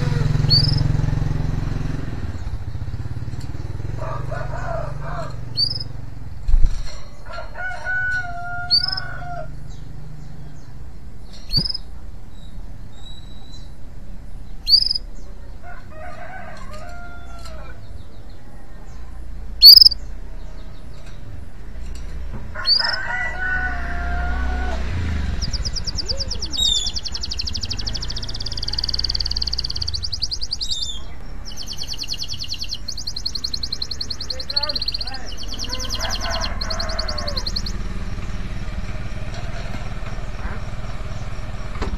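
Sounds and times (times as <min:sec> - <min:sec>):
canary chirping and trilling: 0:00.0 - 0:01.4, 0:04.8 - 0:06.0, 0:06.8 - 0:13.8, 0:14.4 - 0:15.3, 0:19.6 - 0:21.3, 0:22.0 - 0:39.6
low traffic rumble: 0:00.0 - 0:41.9
rooster crowing: 0:03.9 - 0:05.5, 0:07.2 - 0:09.6, 0:15.6 - 0:17.8, 0:22.5 - 0:26.4, 0:35.4 - 0:38.0.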